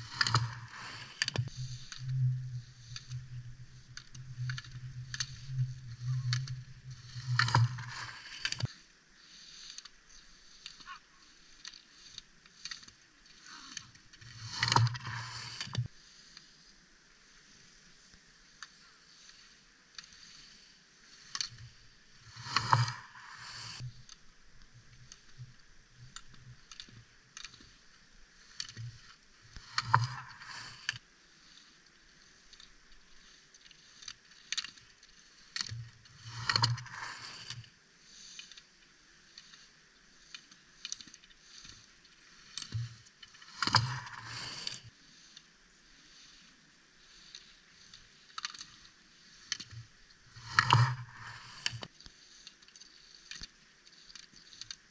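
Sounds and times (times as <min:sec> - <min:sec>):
skis scraping on snow: 0:00.0 - 0:12.1, 0:14.3 - 0:24.0, 0:28.3 - 0:32.5, 0:35.1 - 0:38.4.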